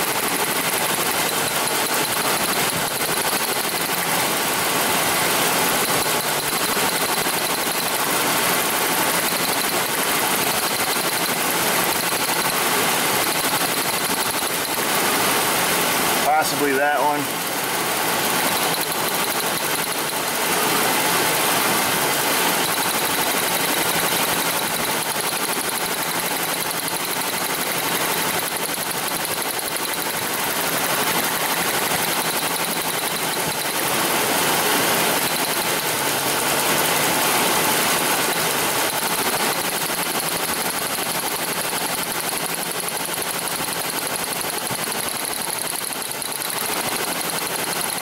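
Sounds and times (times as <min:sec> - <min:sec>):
engine idling with misfire: 0:00.0 - 0:48.0.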